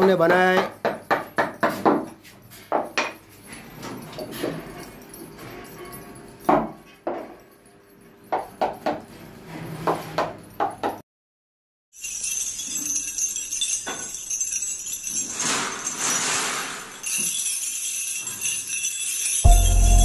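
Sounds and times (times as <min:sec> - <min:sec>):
metal clinks and knocks: 0:00.4 - 0:11.0, 0:12.0 - 0:20.0
small metal pieces jingling: 0:12.0 - 0:20.0.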